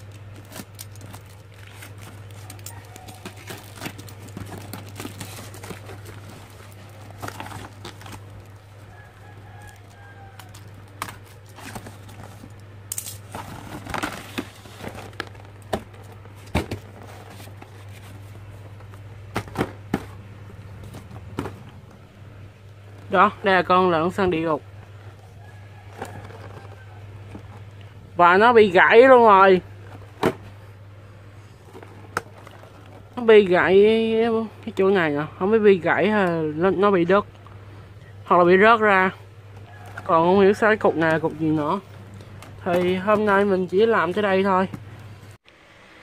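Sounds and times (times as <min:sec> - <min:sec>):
plastic wrap and tape crinkling: 0:00.0 - 0:19.2
cardboard rustling: 0:00.0 - 0:22.1, 0:24.1 - 0:28.0, 0:31.4 - 0:33.3, 0:39.7 - 0:45.4
steady low hum: 0:00.0 - 0:46.0.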